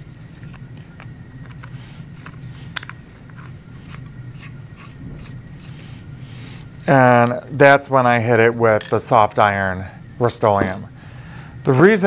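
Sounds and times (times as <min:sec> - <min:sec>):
low steady hum: 0:00.0 - 0:12.0
metal pipe clicks and scrapes: 0:00.3 - 0:06.7.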